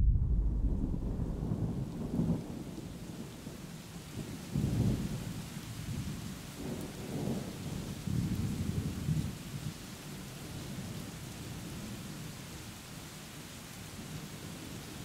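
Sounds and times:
thunder rumbling: 0:00.0 - 0:03.6.

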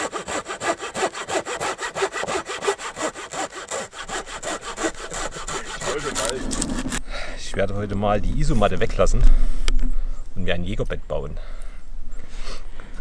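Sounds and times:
hand saw cutting wood: 0:00.0 - 0:07.0.

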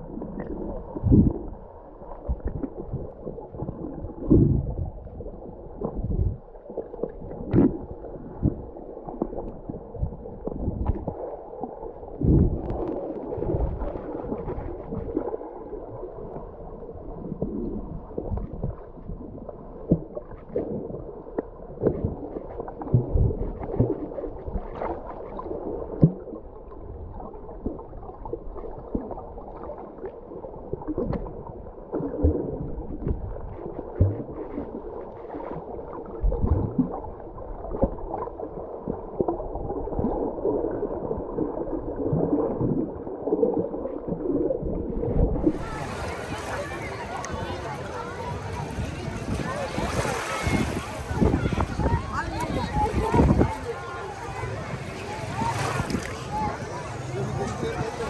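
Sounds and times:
muffled underwater wash: 0:00.0 - 0:58.0
low water thumps: 0:00.2 - 0:01.6, 0:02.2 - 0:11.2, 0:12.1 - 0:15.3, 0:17.1 - 0:24.9, 0:36.2 - 0:37.0.

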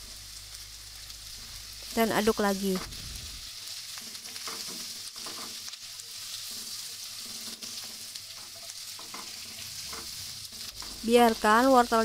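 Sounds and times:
food sizzling in hot oil: 0:00.0 - 0:12.0
spatula scraping a wok: 0:02.8 - 0:11.5.

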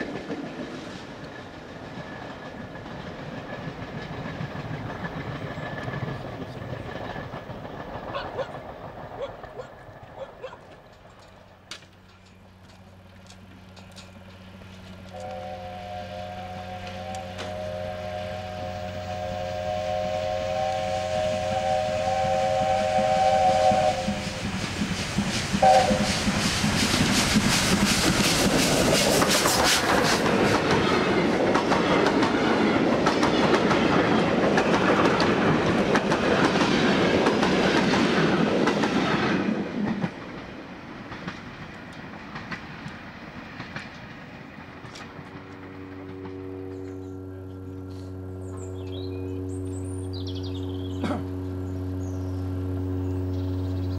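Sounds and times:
wheels clattering over rail joints: 0:00.0 - 0:15.4, 0:24.4 - 0:48.9
locomotive exhaust: 0:00.7 - 0:32.2, 0:41.3 - 0:53.9
steam locomotive whistle: 0:15.1 - 0:24.6, 0:25.6 - 0:26.7.

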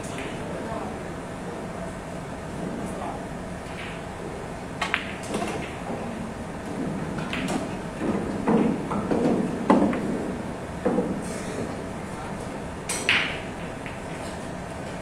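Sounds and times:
pool balls clicking and knocking: 0:03.6 - 0:15.0
cue striking ball: 0:03.7 - 0:11.8, 0:12.8 - 0:14.4.

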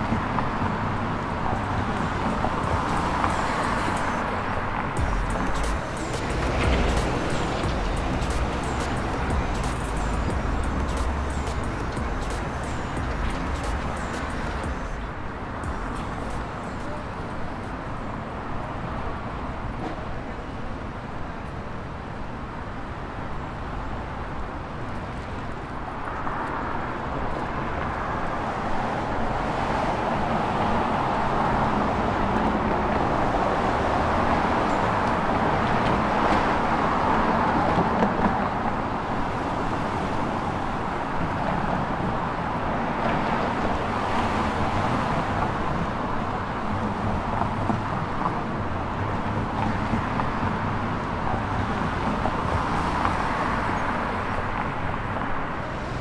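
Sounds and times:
cars passing: 0:00.0 - 0:56.0.

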